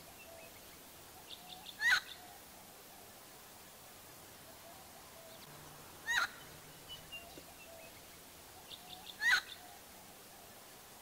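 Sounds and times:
bird calling loudly: 0:01.3 - 0:02.4, 0:04.6 - 0:09.8.

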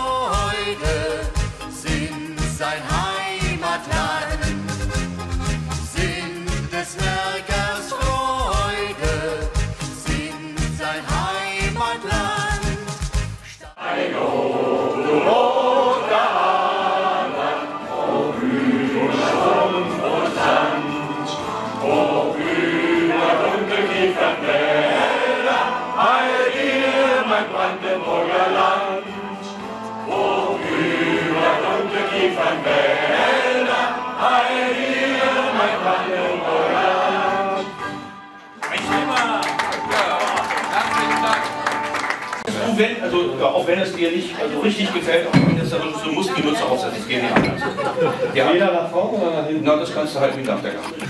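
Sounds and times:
men singing in chorus: 0:00.0 - 0:04.6, 0:05.9 - 0:12.4, 0:13.8 - 0:37.8
musical accompaniment: 0:00.0 - 0:42.9.

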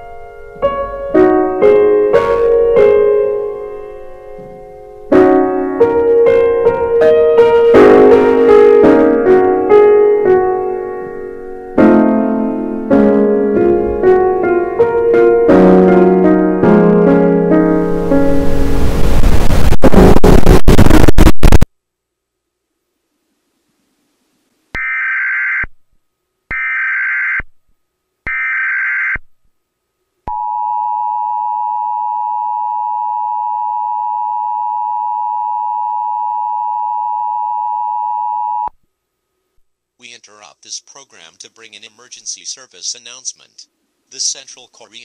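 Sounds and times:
burst of harsh noise: 0:18.0 - 0:21.7.

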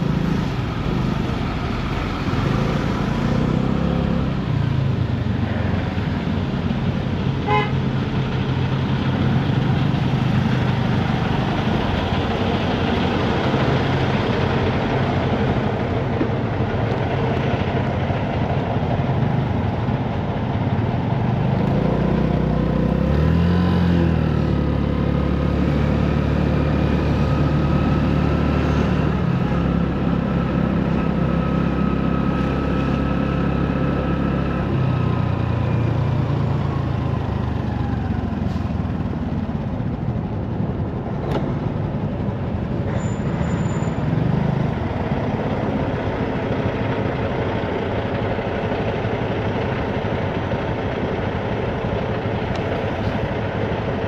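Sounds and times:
car horn toot: 0:07.4 - 0:07.8.

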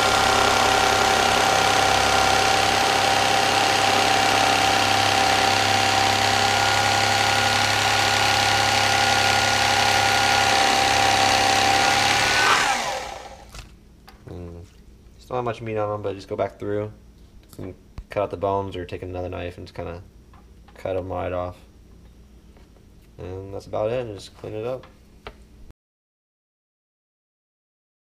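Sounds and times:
electric knife whining: 0:00.0 - 0:13.7.

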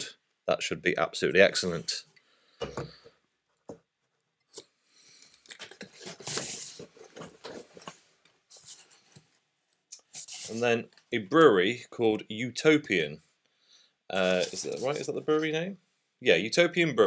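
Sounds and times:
cardboard scraping and rustling: 0:05.6 - 0:09.0, 0:14.2 - 0:15.2.

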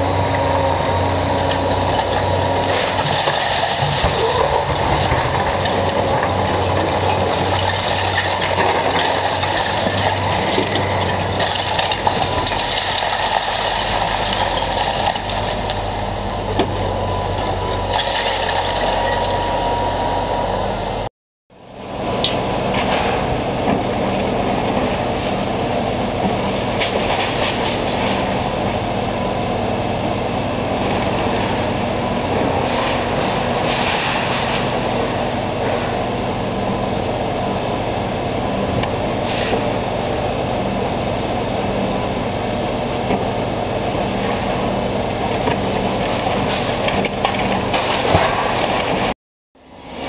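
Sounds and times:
excavator diesel engine running: 0:00.0 - 0:50.0
brick and concrete crunching falling: 0:02.7 - 0:15.7.

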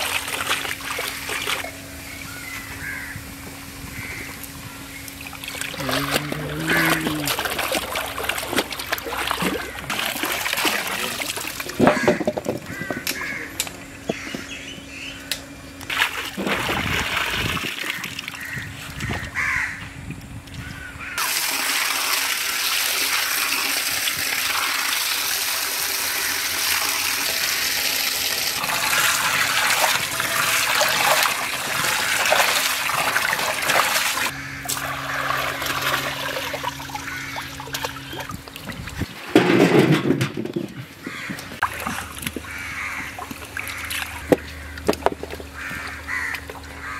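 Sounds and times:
water splashing and trickling: 0:00.0 - 0:01.9, 0:05.1 - 0:13.4, 0:15.9 - 0:19.4, 0:21.2 - 0:46.9
crows cawing: 0:02.3 - 0:03.3, 0:04.0 - 0:04.8, 0:11.9 - 0:15.4, 0:17.9 - 0:19.8, 0:20.7 - 0:21.2, 0:34.3 - 0:35.2, 0:37.0 - 0:37.6, 0:41.0 - 0:41.6, 0:42.4 - 0:44.9, 0:45.5 - 0:46.9.

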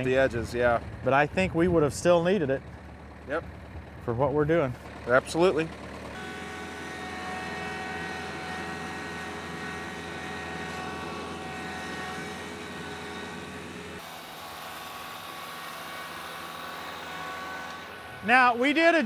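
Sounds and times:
tractor diesel engine under load: 0:00.0 - 0:19.0.

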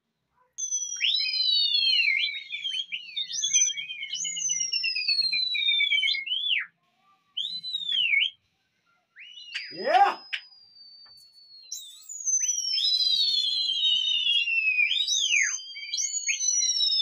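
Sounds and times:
warbling whistle trill: 0:00.6 - 0:06.6, 0:09.3 - 0:17.0
piercing sliding whistles: 0:00.6 - 0:06.7, 0:07.4 - 0:08.4, 0:09.2 - 0:17.0.

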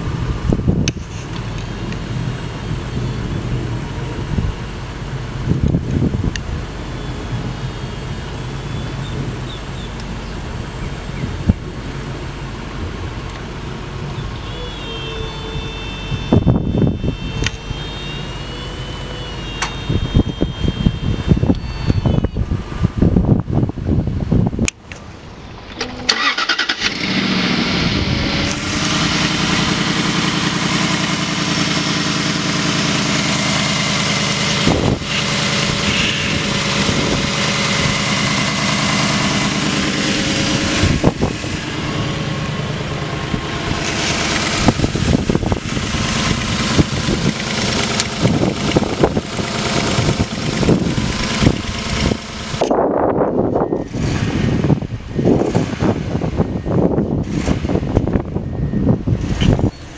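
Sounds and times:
car engine starting and idling: 0:00.0 - 0:59.9.

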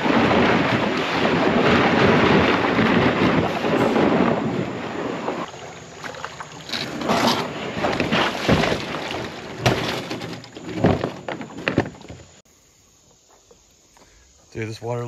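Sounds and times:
plastic kayak scraping on rocks: 0:00.1 - 0:12.4
kayak knocks: 0:05.2 - 0:12.4.

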